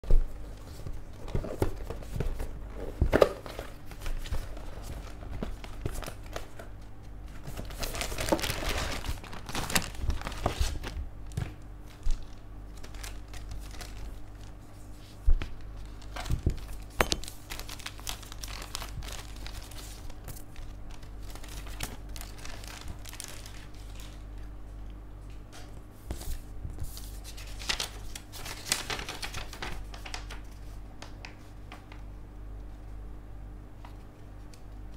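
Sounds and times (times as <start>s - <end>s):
plastic bags crinkling: 7.4s - 14.6s, 15.7s - 24.5s.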